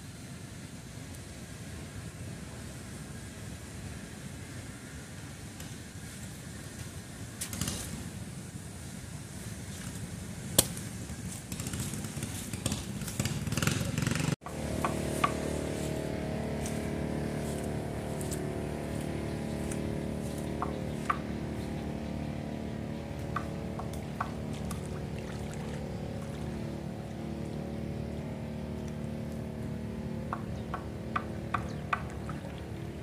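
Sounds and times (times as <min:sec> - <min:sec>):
motorboat engine running: 0:09.9 - 0:33.0.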